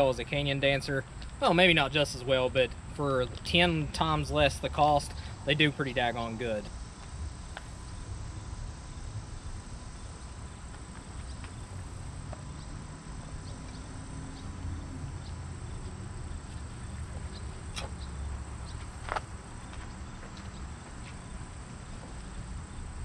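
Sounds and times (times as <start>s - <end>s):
high insect drone: 0.0s - 23.0s
strap buckles ticking and clicking: 16.5s - 18.1s.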